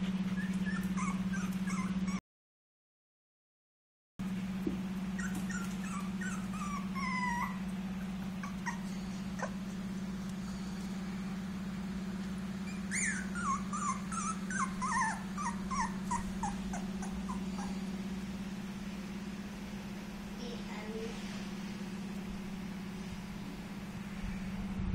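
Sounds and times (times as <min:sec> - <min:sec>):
puppy whimpering: 0:00.0 - 0:02.2, 0:04.7 - 0:10.9, 0:12.6 - 0:18.4
steady low hum: 0:04.2 - 0:24.9.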